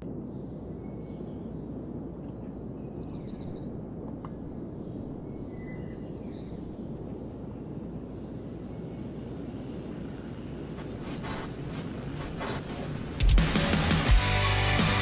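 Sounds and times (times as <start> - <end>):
steady low outdoor noise: 0.0 - 15.0
bird chirps: 10.7 - 11.6.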